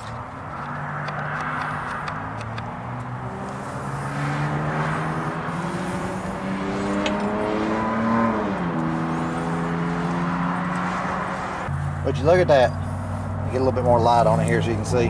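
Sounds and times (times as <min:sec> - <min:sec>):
vehicle engine accelerating: 0:00.0 - 0:15.0.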